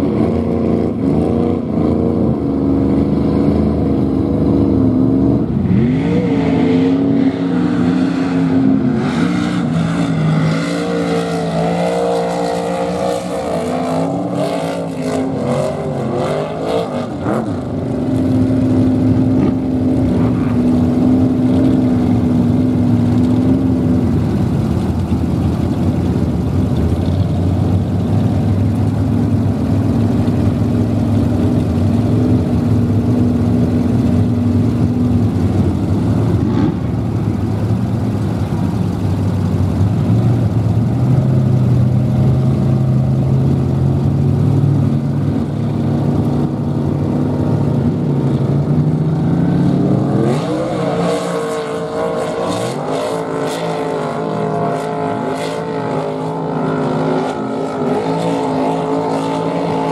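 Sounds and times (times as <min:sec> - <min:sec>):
truck engines running: 0:00.0 - 0:59.9
engine revving up: 0:49.4 - 0:59.9.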